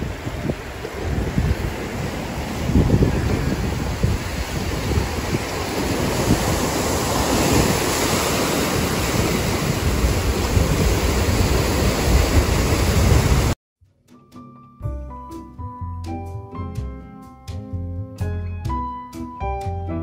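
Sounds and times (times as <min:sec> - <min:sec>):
surf breaking over rocks: 0:00.0 - 0:13.6
wind rumbling on microphone: 0:00.0 - 0:13.6.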